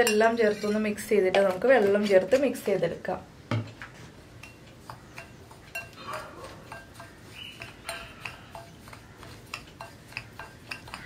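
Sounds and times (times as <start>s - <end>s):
spoon clinking against glass bowl: 0.0s - 1.5s, 4.4s - 11.0s
spoon scraping dry mix: 0.0s - 3.2s, 3.9s - 11.0s.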